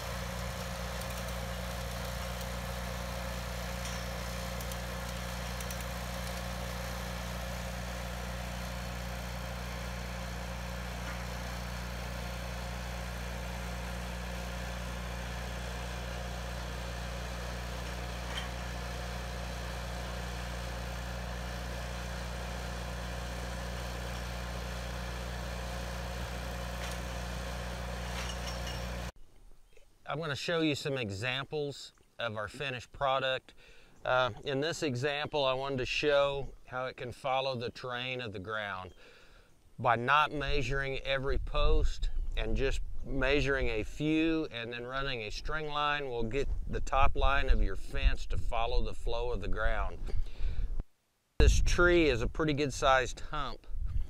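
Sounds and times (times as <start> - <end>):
welder engine idling: 0.0 - 29.1.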